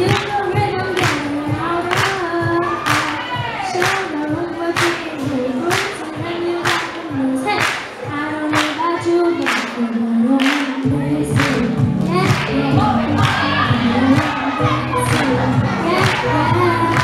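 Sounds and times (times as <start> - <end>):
backing track with steady beat: 0.0 - 17.0
girl singing into a microphone: 0.0 - 17.0
deep bass line: 10.9 - 17.0.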